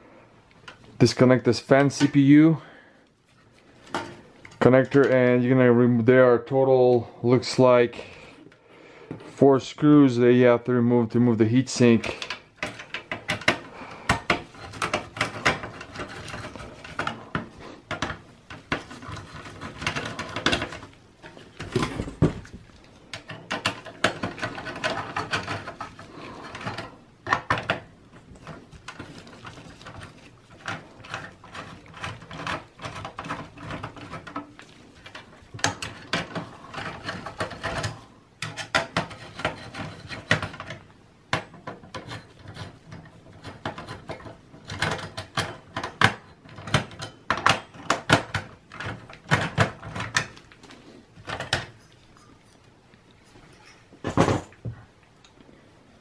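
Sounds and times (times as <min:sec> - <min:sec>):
screwdriver scraping: 0:11.8 - 0:22.2, 0:23.1 - 0:27.8, 0:28.4 - 0:50.5.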